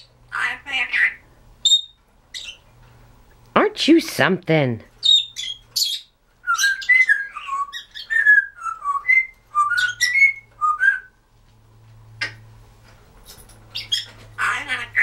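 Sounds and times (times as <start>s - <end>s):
parrot chirps: 0.0s - 2.6s, 5.0s - 11.0s, 13.7s - 15.0s
parrot whistling: 5.0s - 11.2s.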